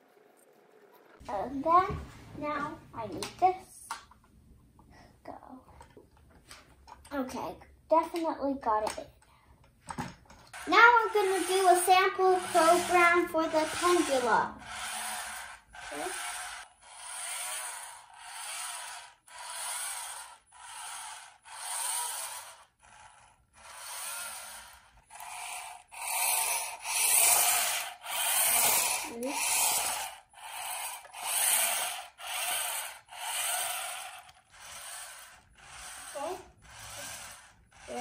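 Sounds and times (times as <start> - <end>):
toy robot motor whirring: 10.5 - 38.0.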